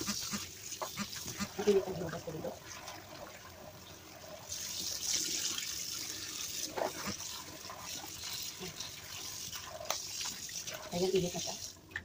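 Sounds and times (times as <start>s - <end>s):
tap water splashing into sink: 0.0s - 3.4s, 6.6s - 12.0s.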